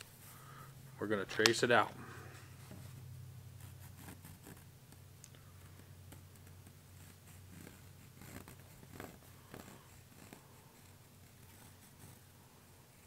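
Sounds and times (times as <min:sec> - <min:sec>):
low steady hum: 0:00.0 - 0:13.0
pencil scratching on leather: 0:03.6 - 0:05.0, 0:05.6 - 0:12.3.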